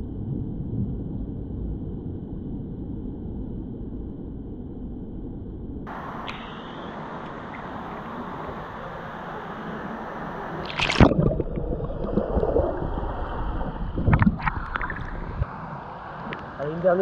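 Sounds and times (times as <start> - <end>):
gurgling sloshing water: 7.5 - 15.6
kayak splash: 8.0 - 15.5.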